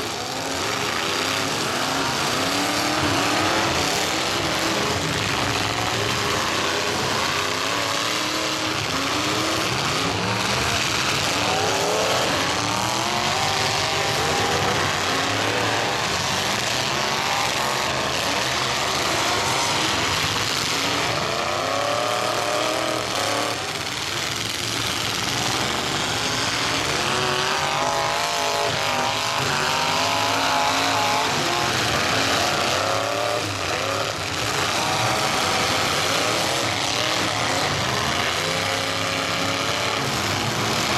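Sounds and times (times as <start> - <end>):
car engines revving: 0.0 - 40.9.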